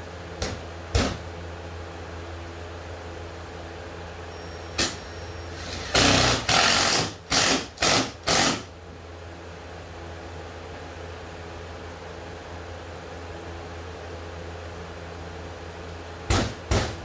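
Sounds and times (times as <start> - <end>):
steady low hum: 0.0 - 17.0
power drill bursts: 5.5 - 8.7.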